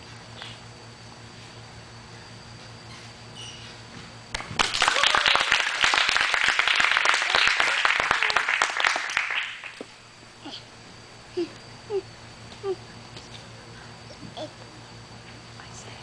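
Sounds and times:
crowd clapping and cheering: 0:04.3 - 0:09.8.

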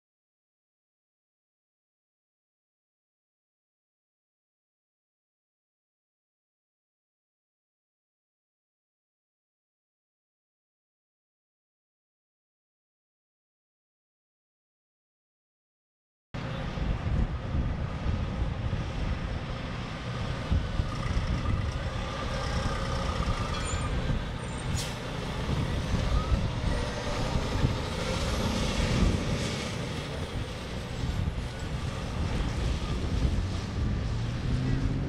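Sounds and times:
fire engine driving past: 0:16.4 - 0:35.0.

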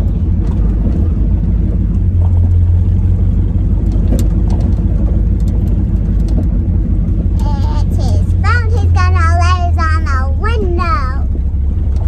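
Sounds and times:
car engine and road rumble: 0:00.0 - 0:12.0
light clicks and rattles: 0:03.8 - 0:06.6.

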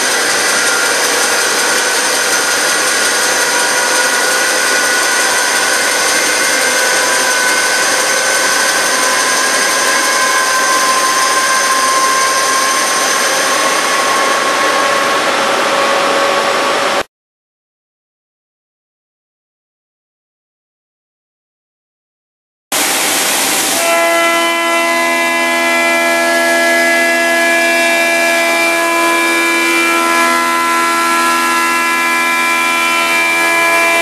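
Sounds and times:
lathe cutting hiss with whining tones: 0:00.0 - 0:17.0, 0:22.8 - 0:34.0.

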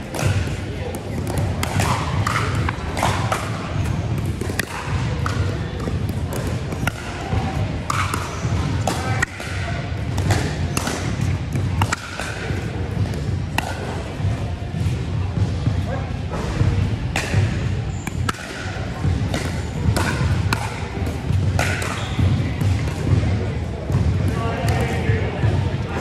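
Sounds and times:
din of busy sports hall: 0:00.0 - 0:26.0
paddles striking plastic ball: 0:00.1 - 0:14.9.

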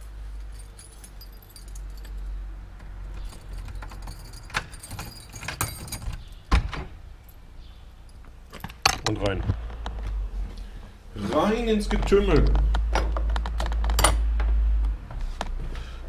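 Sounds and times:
keys jangling: 0:00.4 - 0:02.4, 0:03.0 - 0:06.4.

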